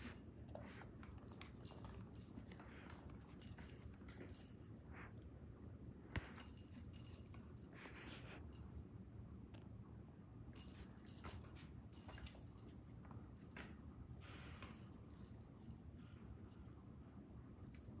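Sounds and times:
cat toy jingling: 0:00.0 - 0:07.9, 0:10.6 - 0:18.0.

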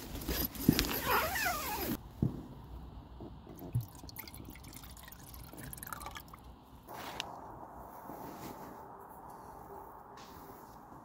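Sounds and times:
wine pouring into metal pot: 0:03.7 - 0:06.4.

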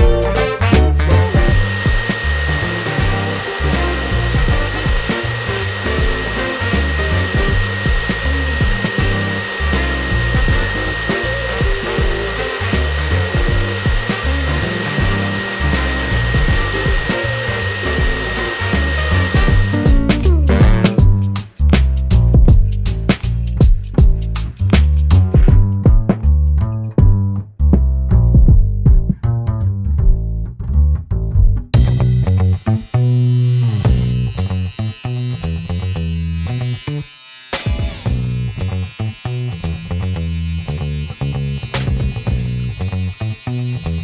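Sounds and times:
dog grooming blower running: 0:01.1 - 0:20.8, 0:32.6 - 0:44.0.

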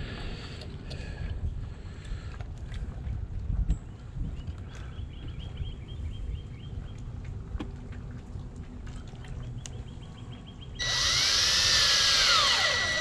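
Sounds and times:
cordless drill driving screw into wood: 0:10.8 - 0:13.0.

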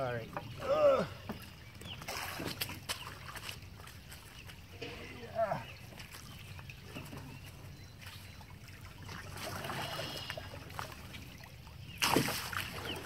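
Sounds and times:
water sloshing and trickling: 0:00.0 - 0:13.0
loud water splash: 0:12.0 - 0:13.0.

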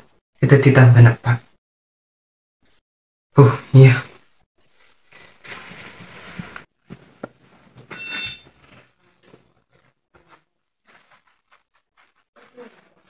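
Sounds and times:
cloth rustling: 0:04.7 - 0:13.0.

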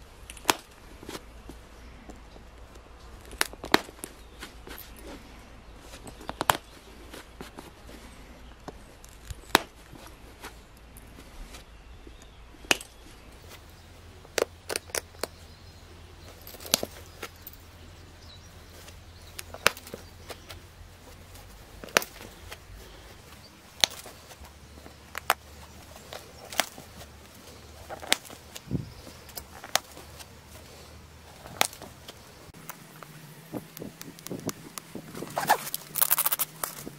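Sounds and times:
stone flakes snapping off: 0:23.8 - 0:24.1.

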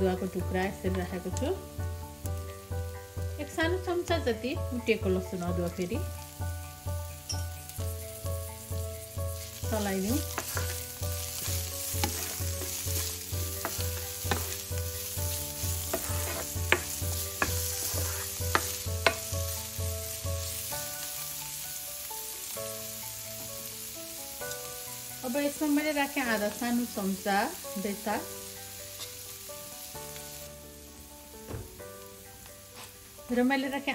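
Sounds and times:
soft background tune with beat: 0:00.0 - 0:33.9
vegetables sizzling in hot oil: 0:00.0 - 0:33.9
spatula scraping and clicking on pan: 0:10.2 - 0:14.7, 0:15.4 - 0:19.3.

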